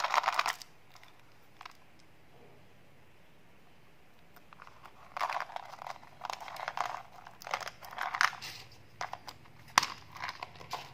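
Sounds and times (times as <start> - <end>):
plastic bottle rattling and clicking: 0.0 - 1.8, 4.5 - 10.9.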